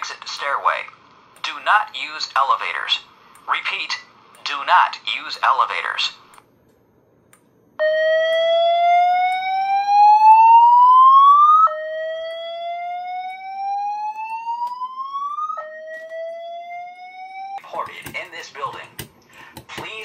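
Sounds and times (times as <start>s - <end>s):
slow-whoop alarm tone: 7.8s - 17.6s.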